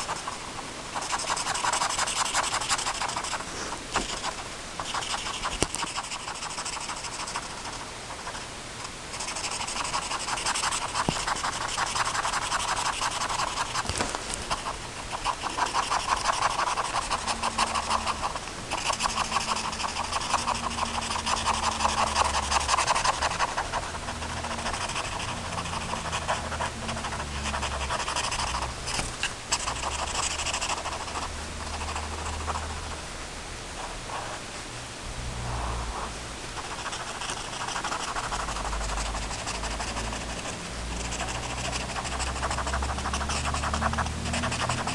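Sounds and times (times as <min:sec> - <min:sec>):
pen scribbling on paper: 0:00.0 - 0:08.4, 0:09.1 - 0:33.0, 0:36.6 - 0:44.9
faint low hum: 0:00.0 - 0:44.9.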